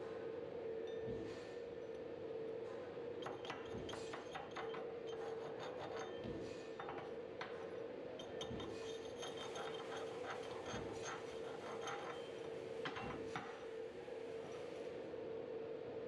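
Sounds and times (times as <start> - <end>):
hammer clinking and scraping metal: 3.2 - 13.5.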